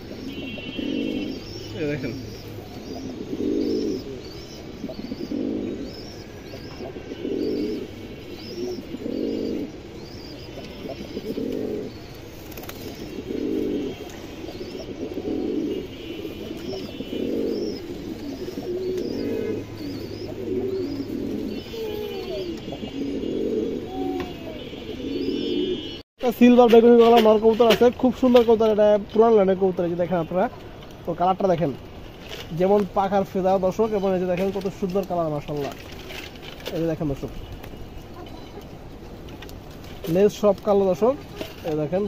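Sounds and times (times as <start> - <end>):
bird chirping high: 0.0 - 26.0
pigeons cooing: 0.0 - 26.0.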